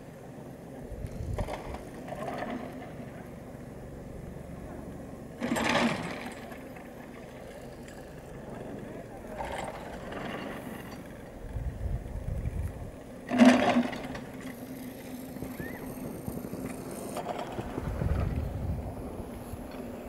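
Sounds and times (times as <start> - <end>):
ski lift rope clattering: 0.4 - 20.0
low rumbling: 17.6 - 19.7.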